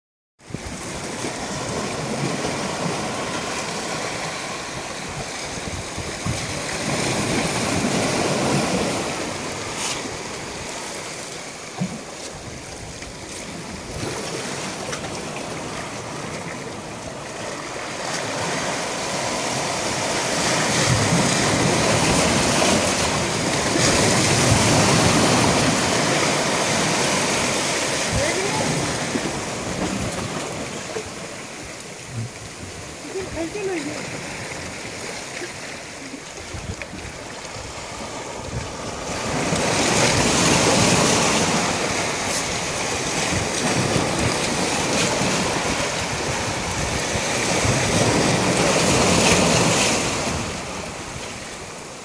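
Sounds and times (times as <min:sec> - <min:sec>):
sea waves washing over rocks: 0:00.4 - 0:52.0.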